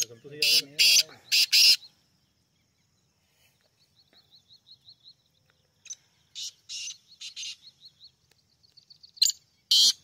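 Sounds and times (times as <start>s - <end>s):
francolin harsh grating calls: 0.0s - 2.0s, 5.8s - 8.1s, 9.2s - 10.0s
small bird thin high chirps: 3.5s - 10.0s.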